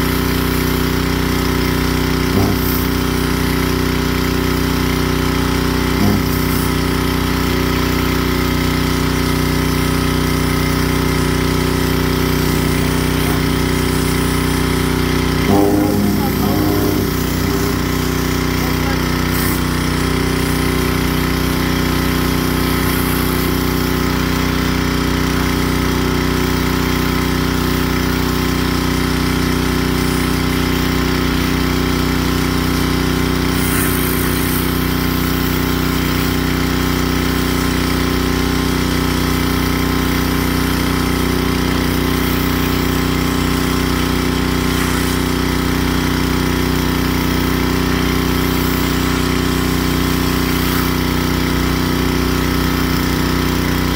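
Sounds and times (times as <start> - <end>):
pressure washer engine running: 0.0 - 53.9.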